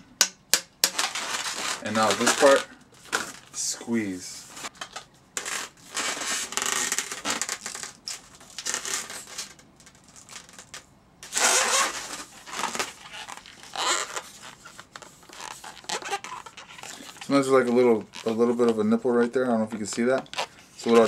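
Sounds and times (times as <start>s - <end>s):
balloon rubbing and squeaking: 1.0s - 2.7s, 5.4s - 9.6s, 10.2s - 21.0s.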